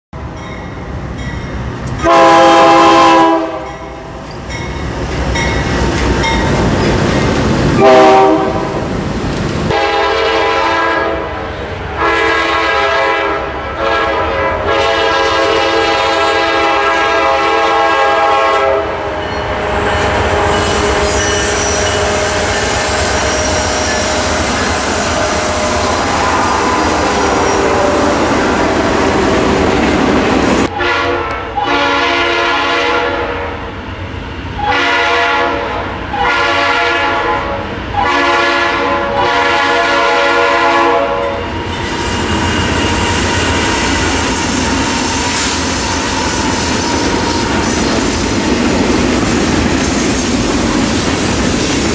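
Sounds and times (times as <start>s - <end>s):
rail noise: 0.2s - 51.9s
locomotive air horns: 2.0s - 3.8s, 7.8s - 8.8s, 9.7s - 29.1s, 30.6s - 33.5s, 34.6s - 48.1s
locomotives rumbling: 19.5s - 30.7s.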